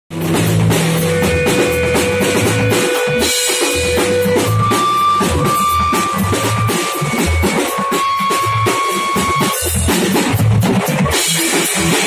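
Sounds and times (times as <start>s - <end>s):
drum kit beating: 0.1s - 12.0s
rock band playing: 0.1s - 12.0s
long held note: 1.1s - 9.5s.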